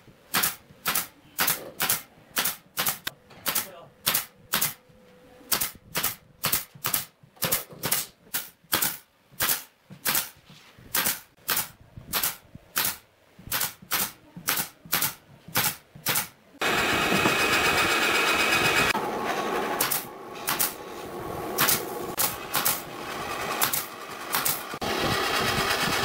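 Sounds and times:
pneumatic nailer firing: 0:00.3 - 0:04.8, 0:05.5 - 0:26.0
loud steady mechanical noise: 0:16.6 - 0:26.0.

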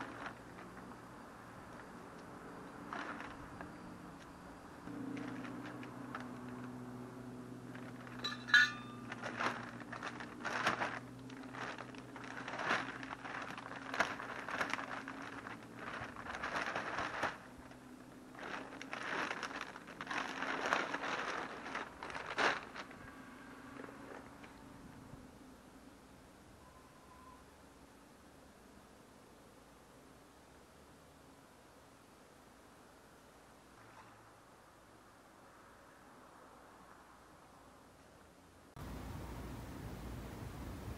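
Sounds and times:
plastic bag crinkling and rustling: 0:00.0 - 0:24.8
sharp clink: 0:08.2 - 0:09.2.

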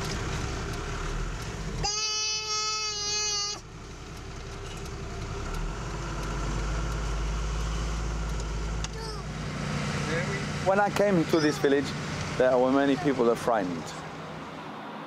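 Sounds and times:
vehicle engine humming: 0:00.0 - 0:15.0.

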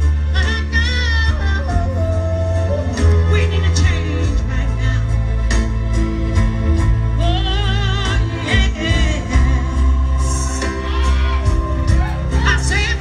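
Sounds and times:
heavy bass line: 0:00.0 - 0:13.0
person singing with vibrato: 0:07.2 - 0:13.0.

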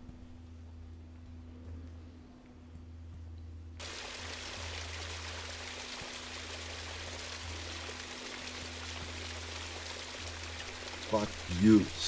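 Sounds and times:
waterfall splashing over rock: 0:03.8 - 0:12.0.

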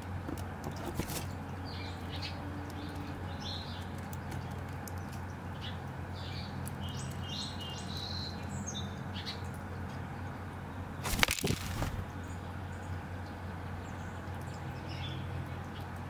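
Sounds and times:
dove wings flapping: 0:00.8 - 0:01.3, 0:11.0 - 0:12.1.

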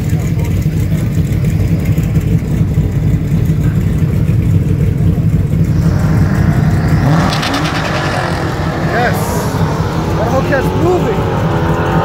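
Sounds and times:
drag car engines rumbling: 0:00.0 - 0:12.0
engine revving: 0:00.0 - 0:12.0.

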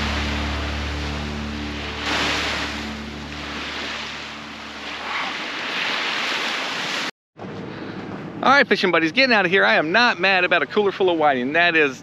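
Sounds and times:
small waves breaking on beach: 0:00.0 - 0:07.1.

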